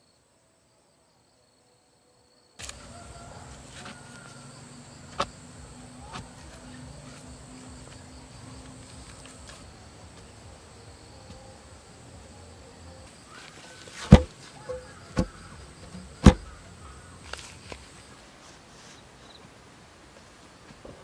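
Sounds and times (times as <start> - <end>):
faint insect buzz: 0.0 - 21.0
heavy thuds of pole into soil: 14.0 - 16.7.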